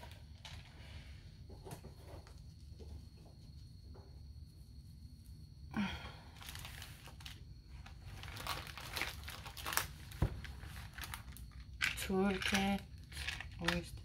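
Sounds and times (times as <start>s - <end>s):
bag crinkling and rustling: 6.3s - 14.0s.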